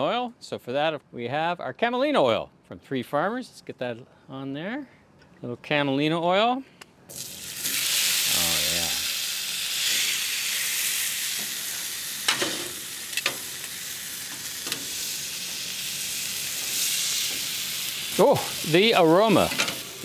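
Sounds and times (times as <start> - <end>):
steak sizzling on a griddle: 7.1 - 20.0.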